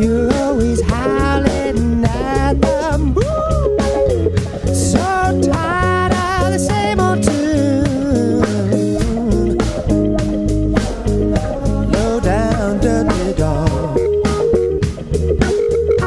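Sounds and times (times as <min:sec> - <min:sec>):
bass guitar: 0:00.0 - 0:16.0
electric guitar lead with bent notes: 0:00.0 - 0:16.0
steady drum beat: 0:00.0 - 0:16.0.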